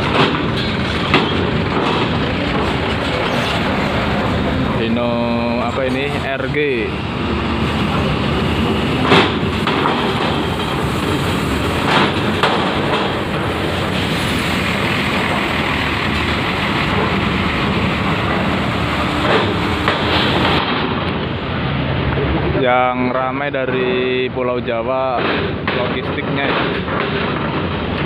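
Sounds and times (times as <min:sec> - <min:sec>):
metal ramp clanks: 0:00.0 - 0:03.7, 0:11.8 - 0:14.1
wheels rumbling over metal plates: 0:00.0 - 0:21.5, 0:25.0 - 0:28.0
diesel engine running: 0:00.0 - 0:22.6.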